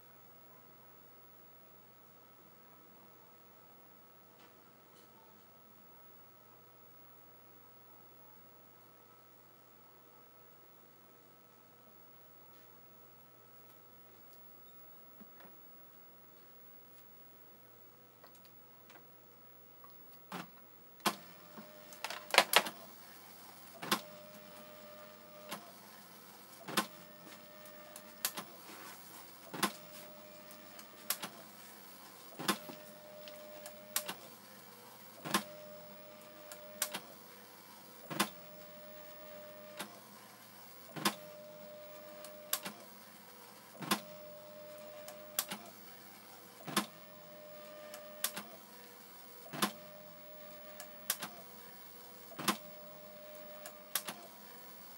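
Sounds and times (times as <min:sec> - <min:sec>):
printer mechanical whir: 0:20.2 - 0:54.9
printer clack: 0:20.3 - 0:22.9.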